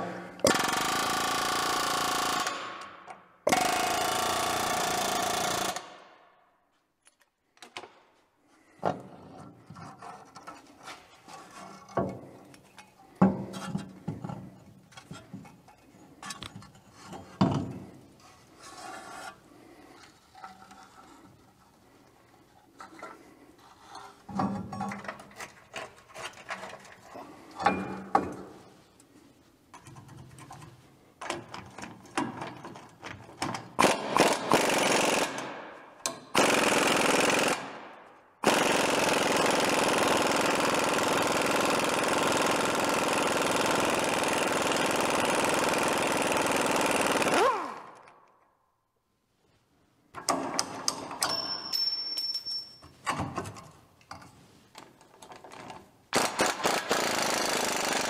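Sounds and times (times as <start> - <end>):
metal clanks and knocks: 24.1 - 28.6
power tool running: 38.4 - 47.9.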